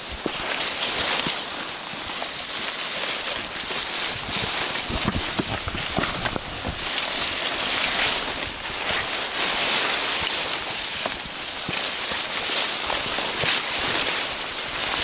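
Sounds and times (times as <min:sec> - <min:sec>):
branches swishing against jackets: 0:00.0 - 0:15.0
soft footfalls: 0:03.6 - 0:09.1.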